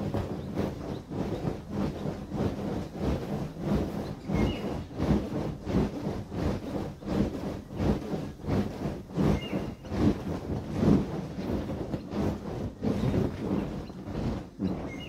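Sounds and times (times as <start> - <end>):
inflatable vinyl toy creaking: 0.0 - 15.0.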